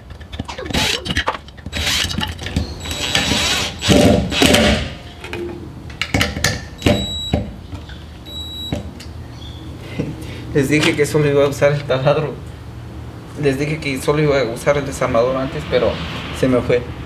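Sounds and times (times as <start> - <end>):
drill driving screws: 1.7 - 2.2, 2.8 - 4.9.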